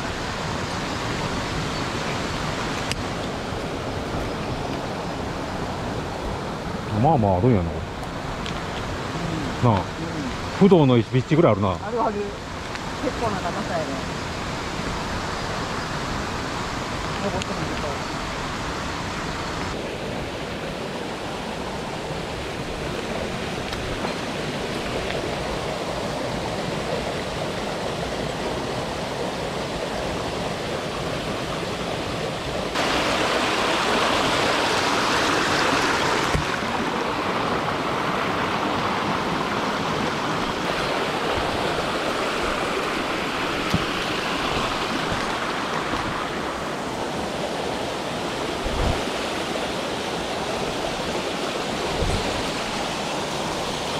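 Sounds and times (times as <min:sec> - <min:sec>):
stream rushing over boulders: 0:00.0 - 0:53.9.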